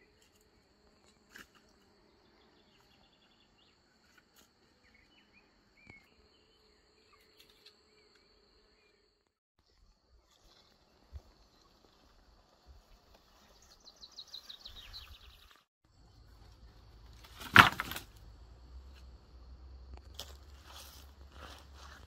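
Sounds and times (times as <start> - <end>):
bird singing a trill: 13.6 - 15.6.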